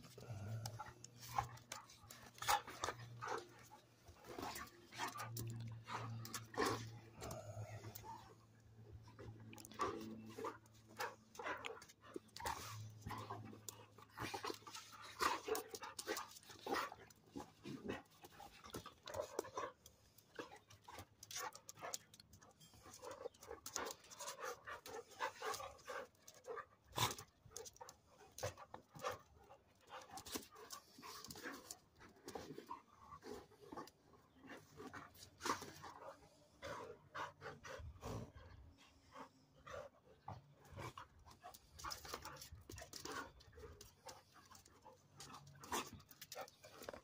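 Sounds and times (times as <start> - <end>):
dogs scuffling and mouthing: 0.0 - 38.5, 39.6 - 47.0
dogs panting: 0.0 - 47.0.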